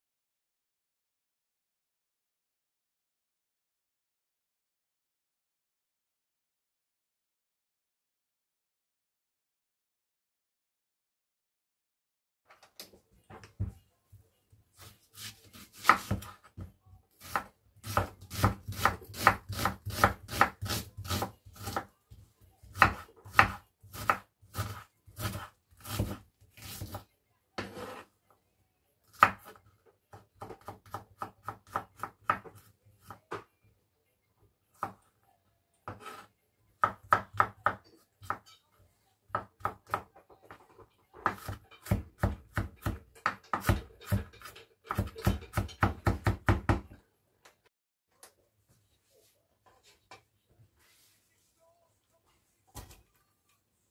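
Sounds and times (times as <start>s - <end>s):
knife chopping on wooden board: 14.8s - 21.9s, 22.6s - 27.0s, 29.1s - 33.2s, 41.2s - 47.0s.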